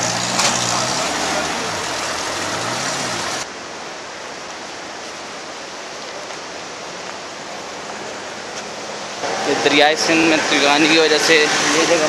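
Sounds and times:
truck engine: 0.0s - 3.5s.

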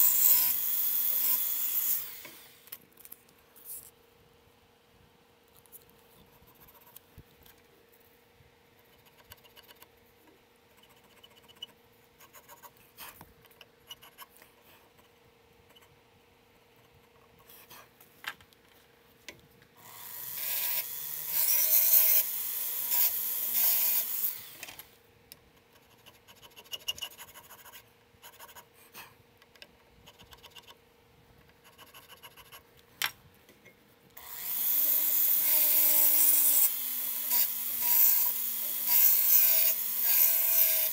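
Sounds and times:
rotary tool cutting: 0.0s - 2.6s, 19.8s - 24.9s, 34.2s - 40.9s.

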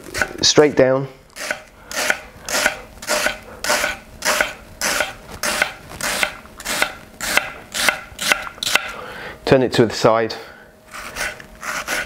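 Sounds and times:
knife slicing onion: 0.0s - 0.4s, 1.4s - 9.0s, 10.9s - 12.0s.

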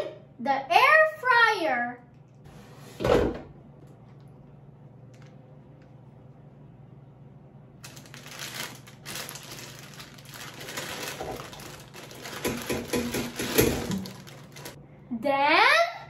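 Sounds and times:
frozen food thudding into basket: 7.8s - 14.8s
plastic bag crinkling: 7.8s - 14.8s.

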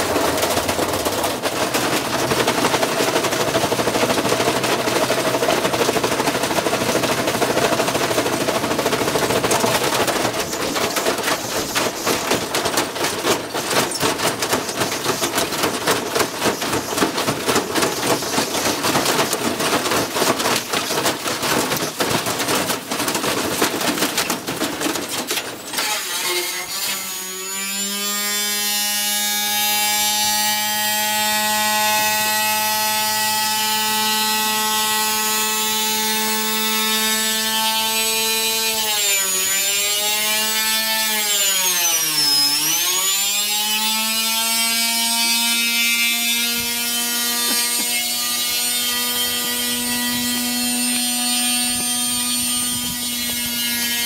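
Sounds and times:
drum and sheet metal clattering: 0.0s - 26.2s.

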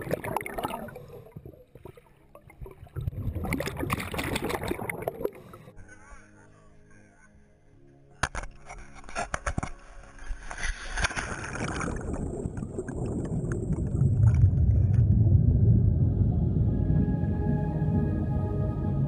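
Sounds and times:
low underwater rumble: 0.0s - 5.7s, 11.5s - 19.0s
rush of water and bubbles: 0.0s - 5.7s, 10.6s - 19.0s.

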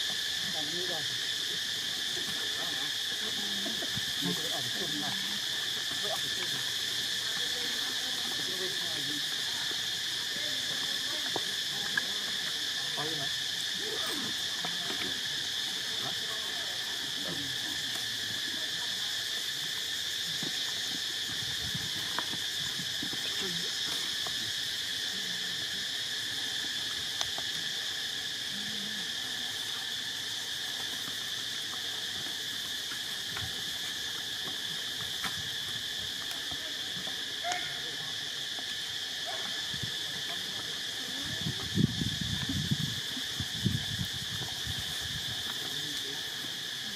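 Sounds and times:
insect chorus drone: 0.0s - 46.9s.

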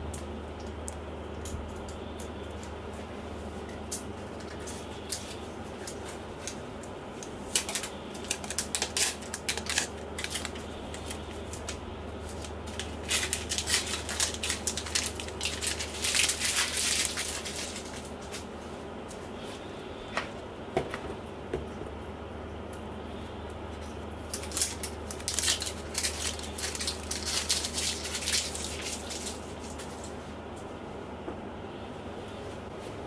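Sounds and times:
steady low hum: 0.0s - 33.0s
packaging crinkling and tapping: 4.4s - 18.4s, 24.3s - 30.1s.

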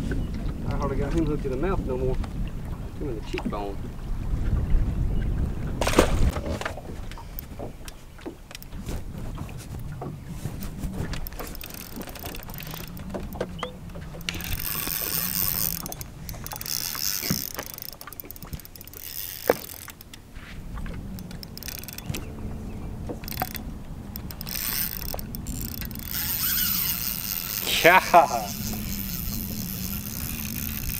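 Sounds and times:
fishing reel gears clicking: 11.2s - 20.2s, 21.2s - 22.3s, 23.2s - 30.9s
low rumble: 20.2s - 26.4s.

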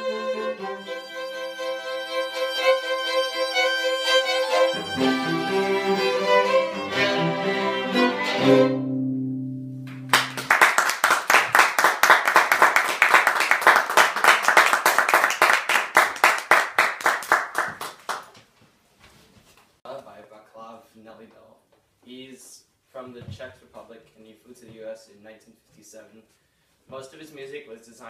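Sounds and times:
string quartet playing: 0.0s - 9.8s
applause: 9.9s - 18.4s.

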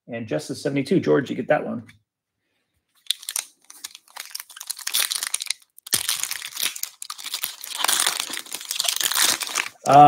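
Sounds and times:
foil wrapper tearing and crinkling: 3.0s - 10.0s.

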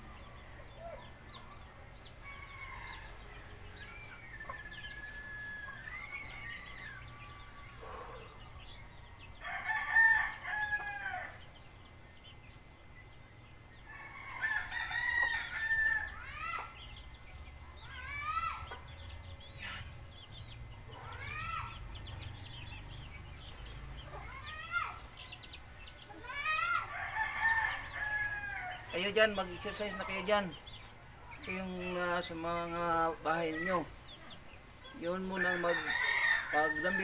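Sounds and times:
roosters crowing: 0.0s - 12.4s, 13.6s - 37.0s
chicken calls: 0.0s - 12.5s, 13.3s - 37.0s.

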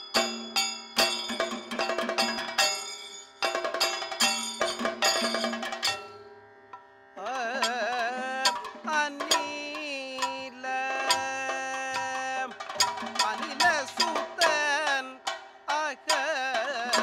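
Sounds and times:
drum and cymbal flurry: 0.0s - 6.2s
small gong and cymbal strikes: 0.0s - 6.3s
person singing with ornaments: 7.2s - 17.0s.

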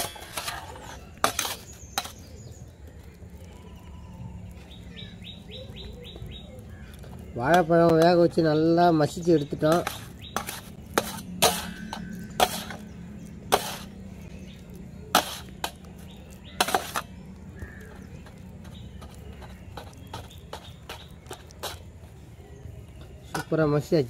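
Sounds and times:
metal spatula scraping steel plate: 0.0s - 2.2s, 9.6s - 14.0s, 15.1s - 15.9s, 16.6s - 17.1s.

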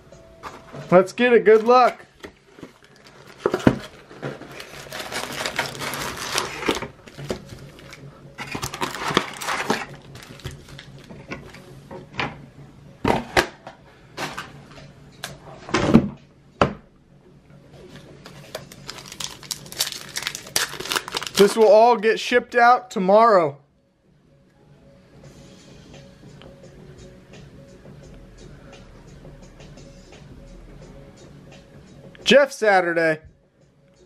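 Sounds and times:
packaging rustling and tearing: 1.5s - 11.1s, 18.3s - 21.7s.

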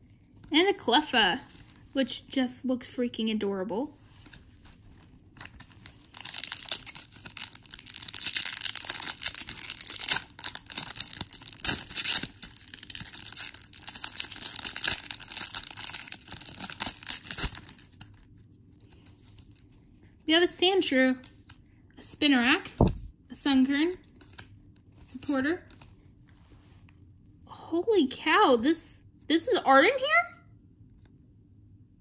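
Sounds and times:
foil wrapper tearing and crinkling: 5.0s - 18.2s.

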